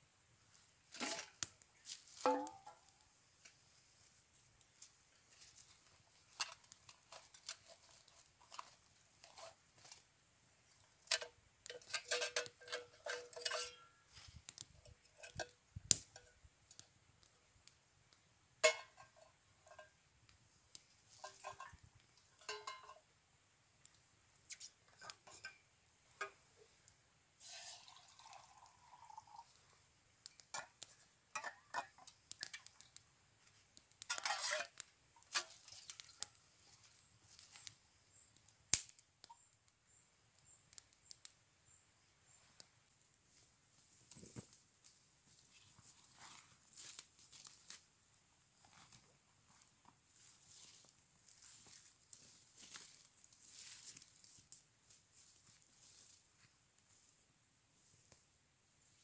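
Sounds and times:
metal cookware clinking: 0:11.1 - 0:14.0, 0:18.6 - 0:19.9, 0:21.2 - 0:21.8, 0:22.4 - 0:23.0, 0:30.5 - 0:32.6, 0:34.1 - 0:35.6
metal scraping: 0:34.0 - 0:36.1.

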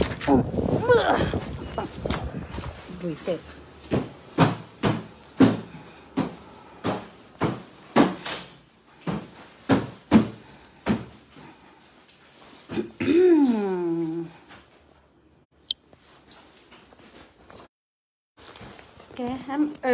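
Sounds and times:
footsteps on a hard floor: 0:01.3 - 0:08.2.

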